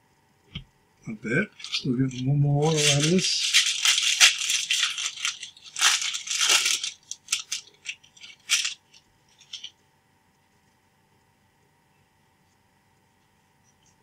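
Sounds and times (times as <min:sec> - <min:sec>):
cards rustling and sliding: 0:01.3 - 0:09.7.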